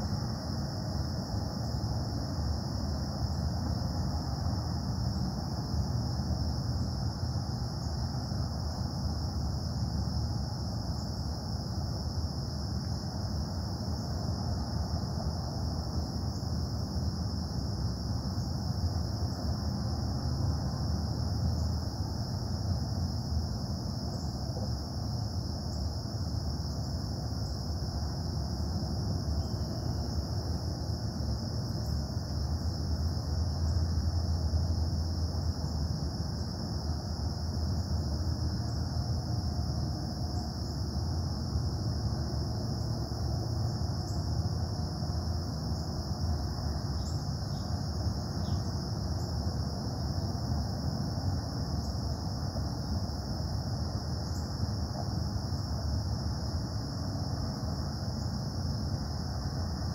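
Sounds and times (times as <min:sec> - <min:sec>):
high insect trill: 0:00.0 - 0:59.9.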